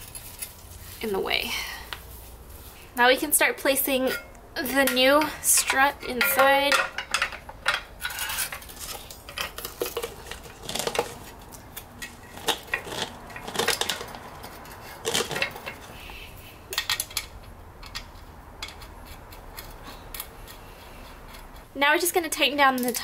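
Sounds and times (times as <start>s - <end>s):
metal clinks and knocks: 4.0s - 16.0s.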